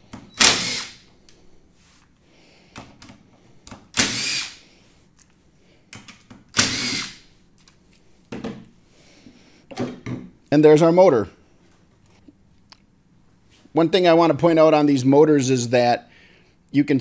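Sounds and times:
cordless drill running: 0.4 - 1.0, 4.0 - 4.6, 6.6 - 7.2.

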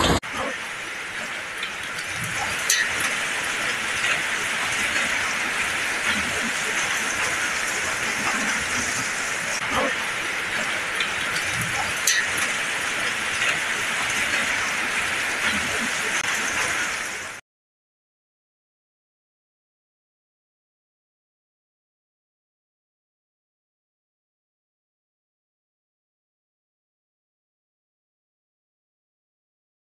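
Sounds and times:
heavy rain and hail: 0.0 - 17.4.

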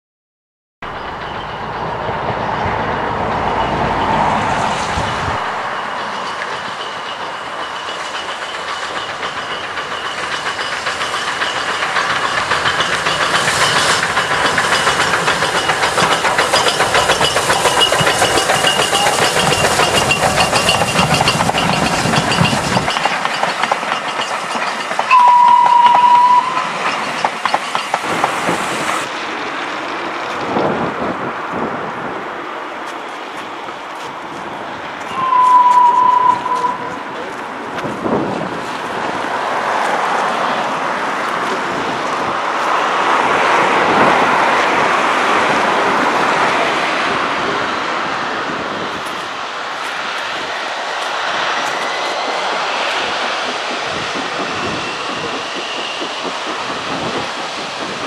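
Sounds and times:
train wheels on rails: 0.8 - 58.0
steam engine exhaust beats: 3.0 - 29.1
steam whistle blast: 25.1 - 26.8, 35.1 - 37.0.

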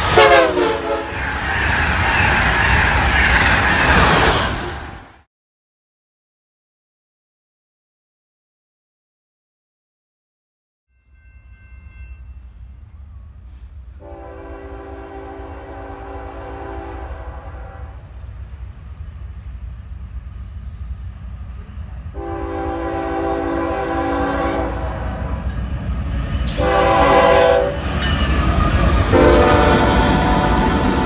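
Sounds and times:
locomotive horn blasts: 0.0 - 1.2, 14.0 - 18.1, 22.1 - 25.4, 26.5 - 27.9, 29.1 - 31.0
train rumbling: 0.0 - 5.3, 11.0 - 31.0.

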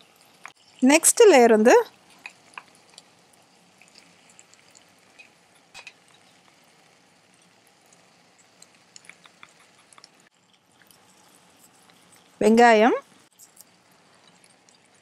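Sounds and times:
wooden spatula light ticks: 8.4 - 10.2.

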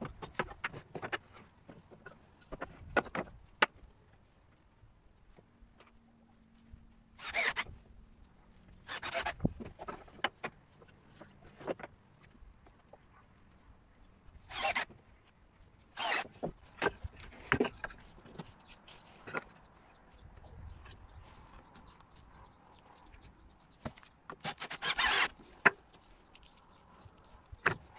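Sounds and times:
wooden boards scraping: 16.0 - 19.5, 23.8 - 25.8.

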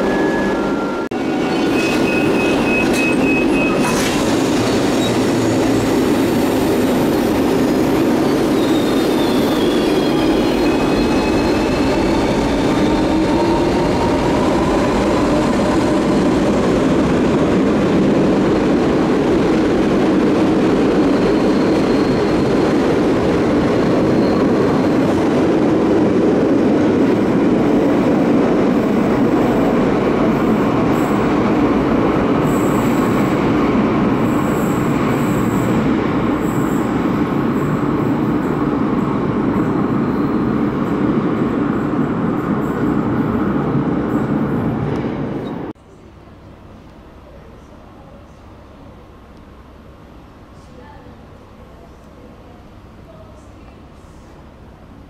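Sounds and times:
wheel squeal: 0.0 - 6.4, 8.2 - 13.1, 21.1 - 22.6
train rumbling on rails: 0.0 - 55.0.

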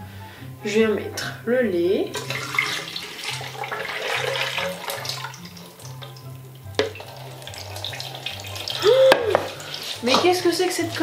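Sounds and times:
milk splashing into blender jug: 2.2 - 10.2.

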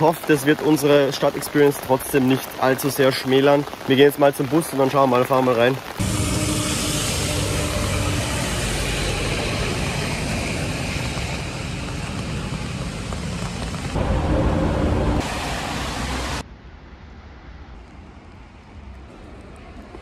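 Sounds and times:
street traffic noise: 5.9 - 20.0.

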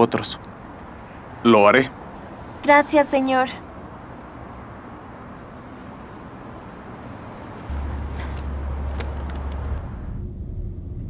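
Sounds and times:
thin high tone: 7.7 - 10.3
loud deep low hum: 7.7 - 11.0.

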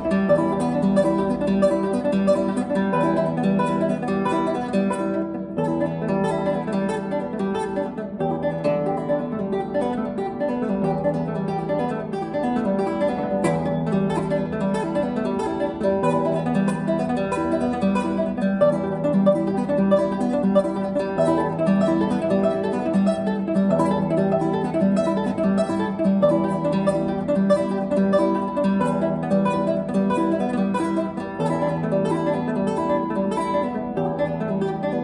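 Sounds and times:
classical guitar plucked notes: 0.0 - 35.0.

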